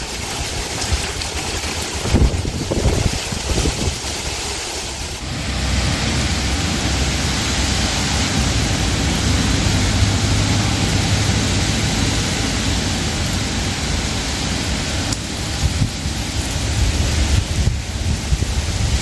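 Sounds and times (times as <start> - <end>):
heavy rain on pavement: 0.0 - 19.0
low rumble: 5.0 - 18.7.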